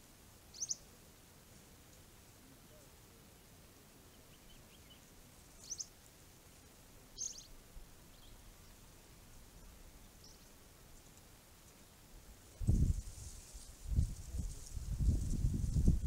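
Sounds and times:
low steady hiss: 0:00.0 - 0:16.0
faint high bird chirps: 0:00.5 - 0:00.9, 0:04.1 - 0:06.0, 0:07.1 - 0:08.8.

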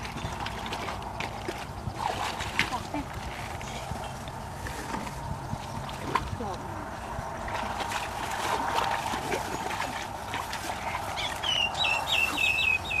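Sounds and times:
feet splashing through muddy water: 0:00.0 - 0:04.0, 0:07.2 - 0:13.0.

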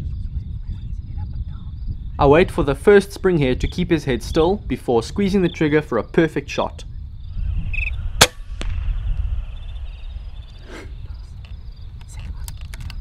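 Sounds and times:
low rumble: 0:06.8 - 0:12.4
air rifle shot: 0:08.2 - 0:09.2.

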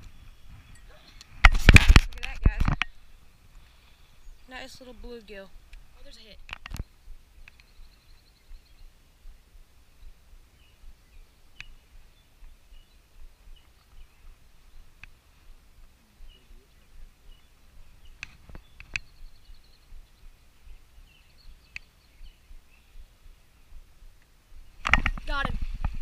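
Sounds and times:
faint birds chirping: 0:00.0 - 0:01.5, 0:02.2 - 0:26.0
sharp clicks: 0:01.2 - 0:03.0, 0:05.7 - 0:07.8, 0:11.6 - 0:11.8, 0:18.1 - 0:19.2, 0:24.2 - 0:25.5.

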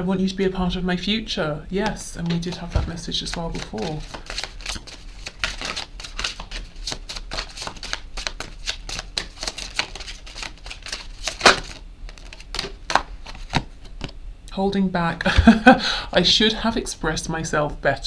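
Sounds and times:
cards being shuffled: 0:01.8 - 0:14.2.

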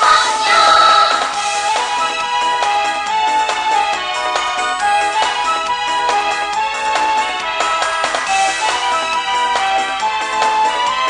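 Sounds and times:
choir singing with accompaniment: 0:00.0 - 0:01.6.

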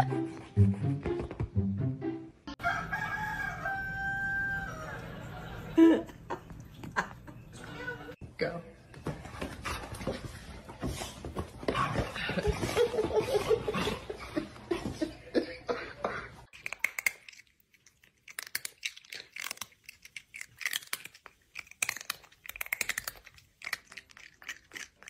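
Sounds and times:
cat clicking mouth sounds: 0:16.6 - 0:25.0.

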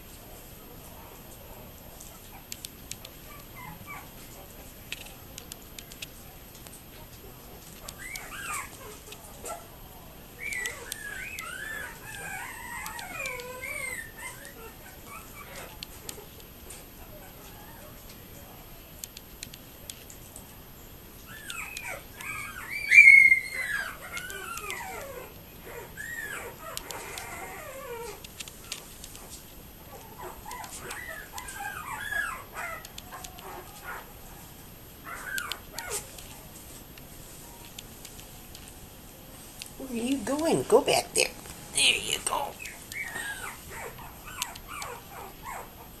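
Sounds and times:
puppies whining: 0:02.1 - 0:04.6, 0:07.8 - 0:09.7, 0:10.3 - 0:18.2, 0:21.2 - 0:38.0, 0:39.8 - 0:46.0.

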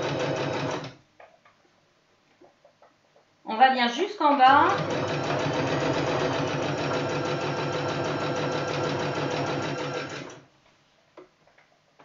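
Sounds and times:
sewing machine stitching: 0:00.0 - 0:01.0, 0:04.5 - 0:10.4.

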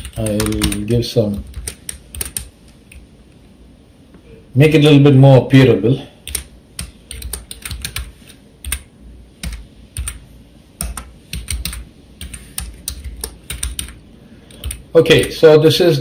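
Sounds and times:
typing on computer keyboard: 0:00.0 - 0:02.5, 0:06.2 - 0:10.2, 0:10.8 - 0:15.4.

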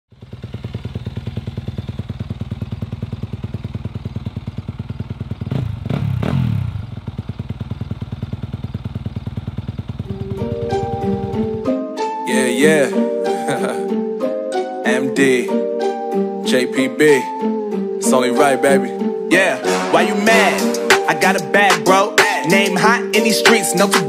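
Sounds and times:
motorcycle engine idling: 0:00.1 - 0:11.8
engine revving: 0:05.0 - 0:07.6
music: 0:10.0 - 0:24.0.

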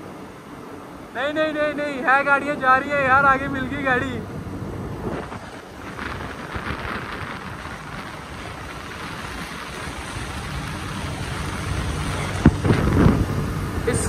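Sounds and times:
engine and road noise: 0:00.0 - 0:14.0
wind buffeting microphone: 0:00.0 - 0:14.0
rush of air: 0:03.8 - 0:14.0.

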